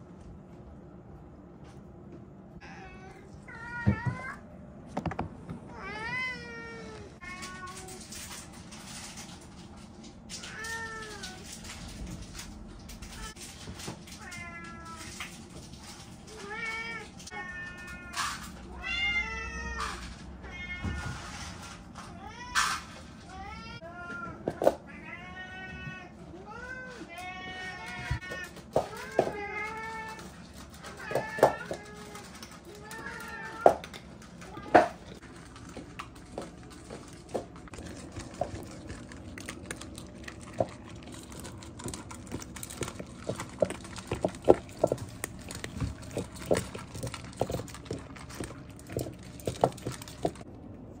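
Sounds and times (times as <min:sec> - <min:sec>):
cats meowing: 0:05.7 - 0:08.1, 0:14.1 - 0:15.4, 0:16.3 - 0:21.3, 0:22.1 - 0:35.2
food bowls knocking on wooden floor: 0:41.8 - 0:50.4.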